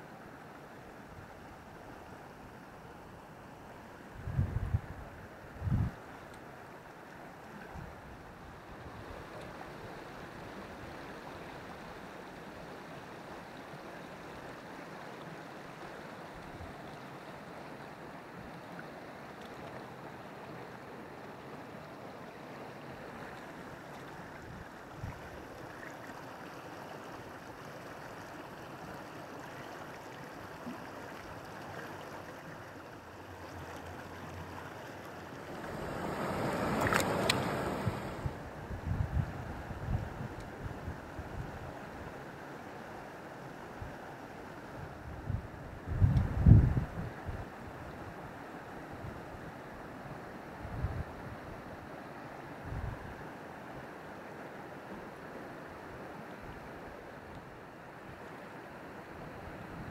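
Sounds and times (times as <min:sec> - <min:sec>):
mountain stream over rocks: 0:00.0 - 0:59.9.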